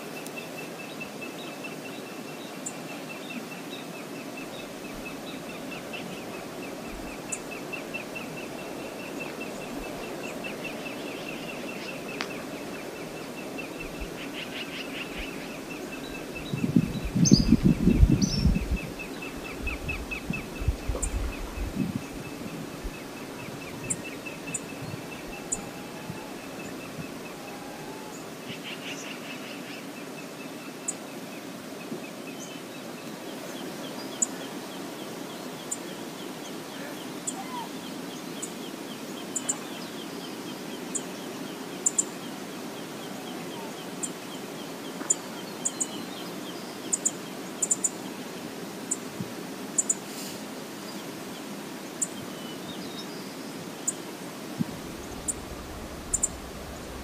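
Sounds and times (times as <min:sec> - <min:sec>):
waterfall rushing: 0:22.0 - 0:28.4, 0:54.1 - 0:57.0.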